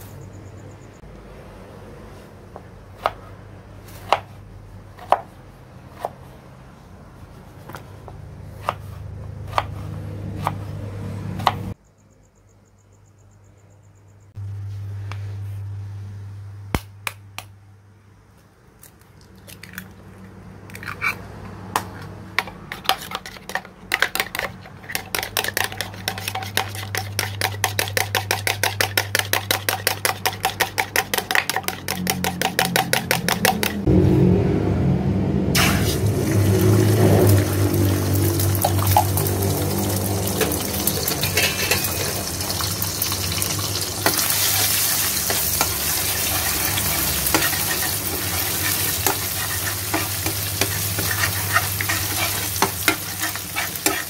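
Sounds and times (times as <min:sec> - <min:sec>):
low hum: 0:14.2 - 0:17.4, 0:33.6 - 0:44.1
egg beaten in plastic jug: 0:22.7 - 0:33.8.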